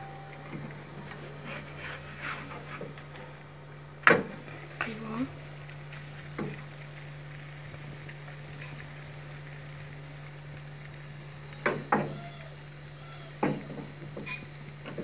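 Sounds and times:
steady low hum: 0.0 - 11.4.

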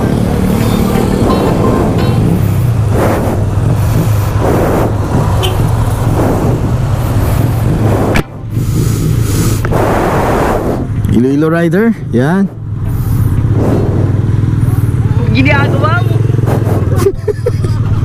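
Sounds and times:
motorcycle engine idling: 0.0 - 7.8, 11.9 - 16.9
vehicles passing by: 0.0 - 18.0.

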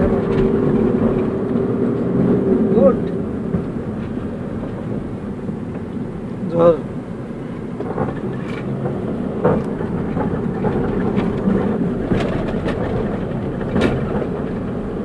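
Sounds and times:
sharp knocks and rattles: 0.0 - 2.1, 7.8 - 15.0
car engine and tyre noise: 0.0 - 15.0.

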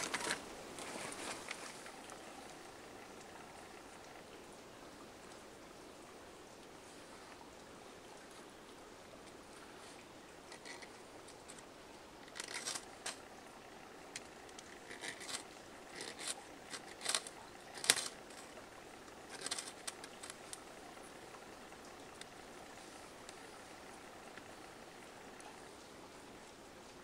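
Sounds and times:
scraping and clicking tinder: 0.0 - 3.8, 10.4 - 21.0
faint running water hiss: 0.0 - 27.0.

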